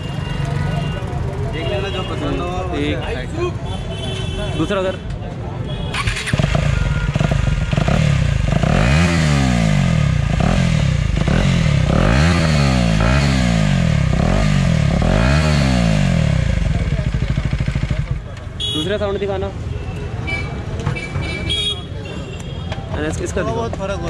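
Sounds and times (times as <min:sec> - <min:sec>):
motorcycle engine revving: 0:05.9 - 0:18.8.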